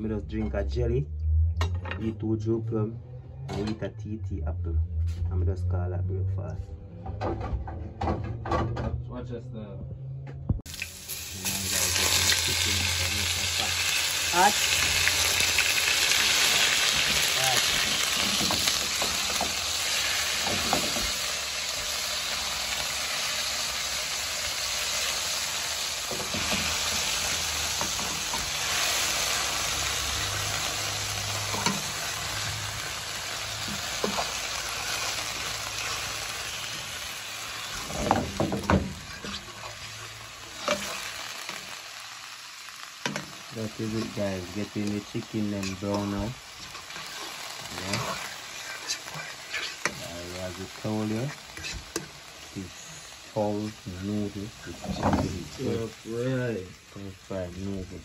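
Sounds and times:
chicken sizzling in frying pan: 0:10.6 - 0:58.0
metal fork scraping pan: 0:39.1 - 0:39.7.

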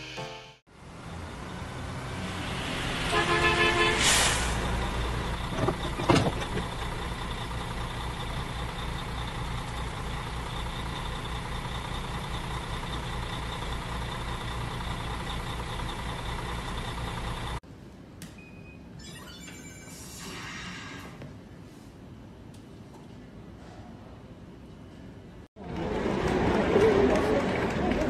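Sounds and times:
bus engine idling: 0:00.7 - 0:17.6
air brake hiss: 0:03.8 - 0:04.8.

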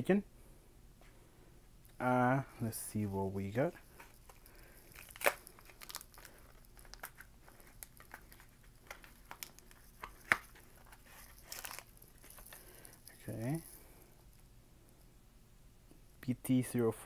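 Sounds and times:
foil wrapper crinkling: 0:03.8 - 0:13.9
wrapper snaps: 0:04.0 - 0:13.8.

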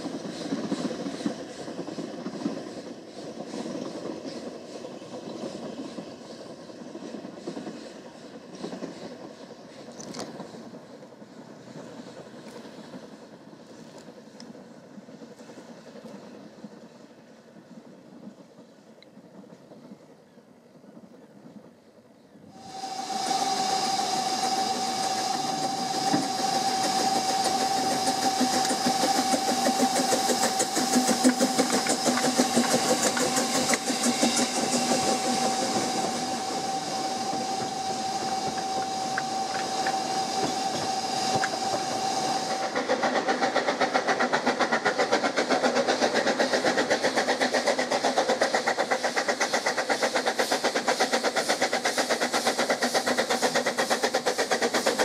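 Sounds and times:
steam hiss: 0:00.0 - 0:55.0
steam train passing: 0:00.0 - 0:55.0
locomotive exhaust beat: 0:22.5 - 0:55.0.

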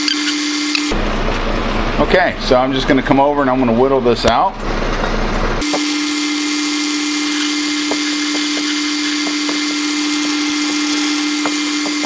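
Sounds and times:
lathe high hum: 0:04.6 - 0:12.0.

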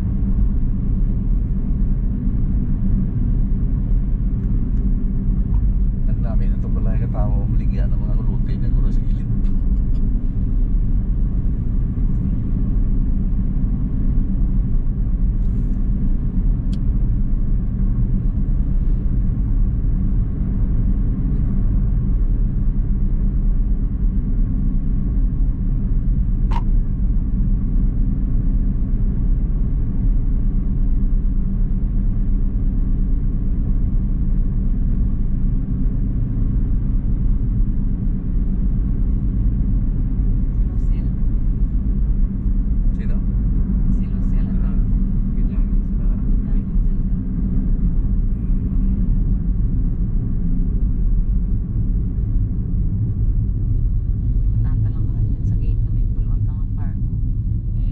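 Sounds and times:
car engine and road rumble: 0:00.0 - 0:57.9
sharp click: 0:26.5 - 0:26.7.

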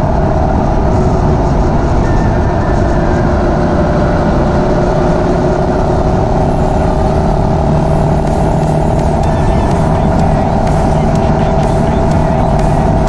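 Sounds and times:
wind and road noise: 0:00.0 - 0:13.0
motorcycle engine running: 0:05.7 - 0:13.0.

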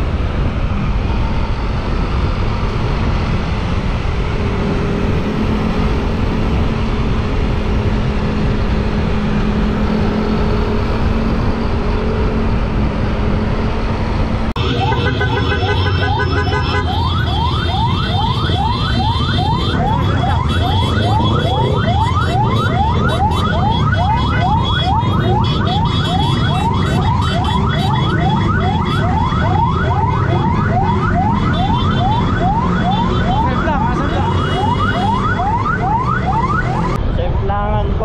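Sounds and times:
electronic siren yelping: 0:14.6 - 0:37.8.

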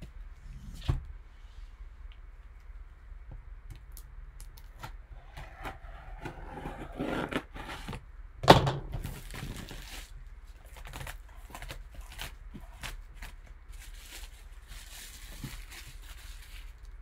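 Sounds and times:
plastic crinkling: 0:09.0 - 0:17.0.

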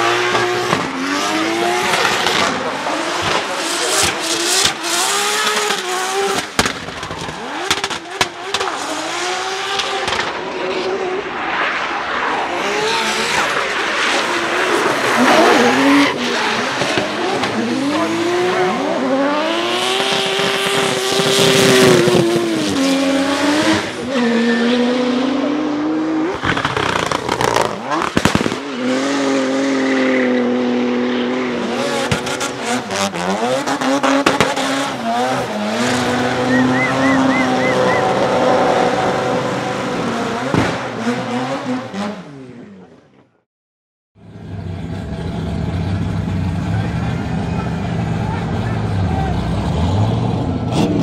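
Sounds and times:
rotary engine at full throttle: 0:12.4 - 0:42.1
tyre squeal: 0:36.2 - 0:38.2.

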